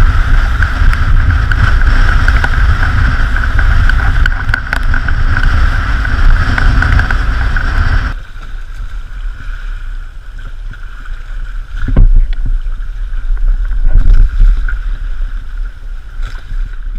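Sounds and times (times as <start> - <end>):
water rushing along hulls: 0.0 - 16.9
wind buffeting microphone: 0.0 - 16.9.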